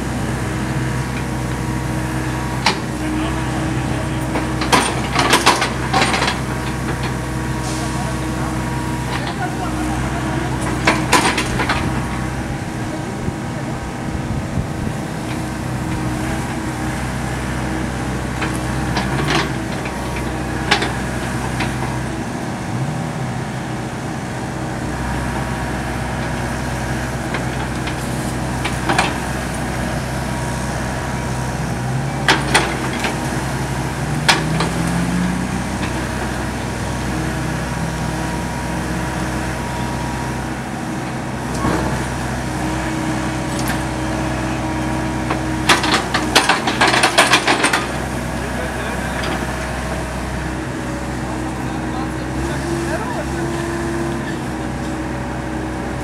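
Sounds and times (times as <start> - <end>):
excavator diesel engine running: 0.0 - 56.0
sharp clanks of excavator digging: 2.5 - 3.2, 3.9 - 8.0, 8.6 - 12.2, 18.2 - 22.1, 26.2 - 29.8, 32.1 - 37.3, 41.4 - 50.4.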